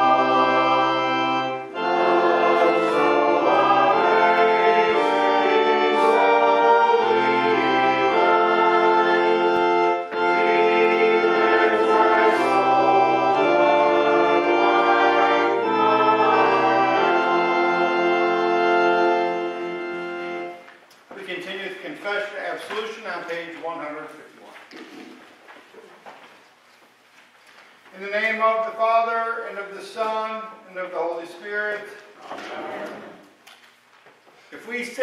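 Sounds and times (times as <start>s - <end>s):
church organ chords: 0.0s - 20.7s.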